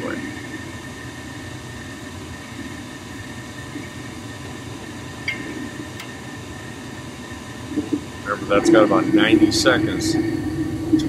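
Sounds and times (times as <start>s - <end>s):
gas furnace rushing: 0.0s - 11.0s
igniter clicks: 5.2s - 6.4s.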